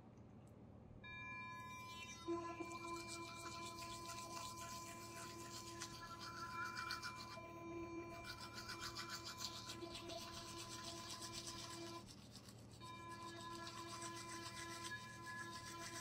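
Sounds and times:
electric toothbrush buzzing: 0:01.5 - 0:16.0
bristles scrubbing teeth: 0:01.7 - 0:16.0.

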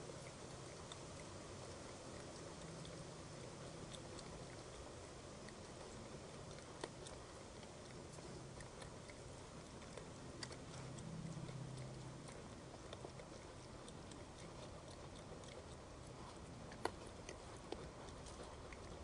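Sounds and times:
raccoon crunching food: 0:00.0 - 0:19.0.

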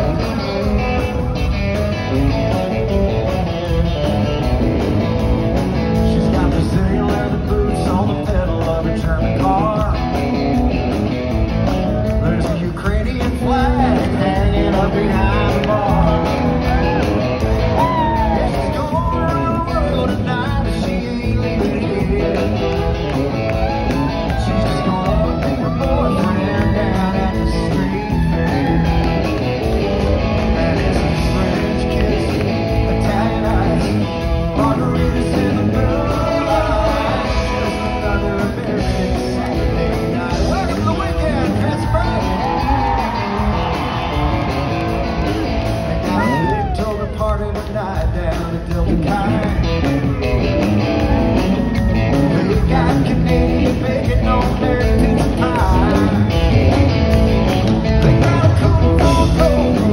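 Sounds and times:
live country band playing: 0:00.0 - 0:59.9
man singing lead vocal: 0:05.6 - 0:11.0, 0:11.8 - 0:44.0, 0:45.9 - 0:59.9.

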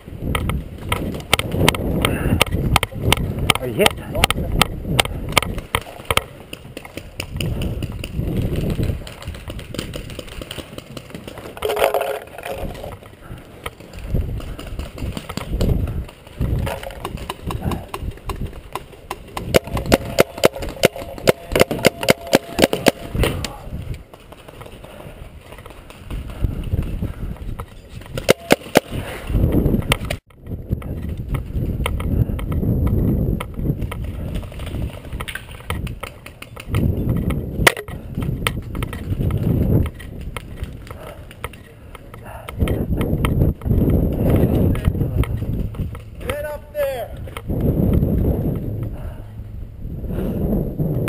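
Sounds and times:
paintball markers firing: 0:00.3 - 0:13.0, 0:13.6 - 0:23.6, 0:28.1 - 0:30.2.

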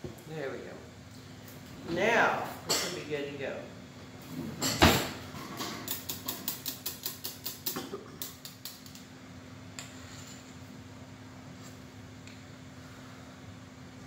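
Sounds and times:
low steady hum: 0:00.0 - 0:14.0
metal spoon clicking on whisk: 0:05.9 - 0:09.0.

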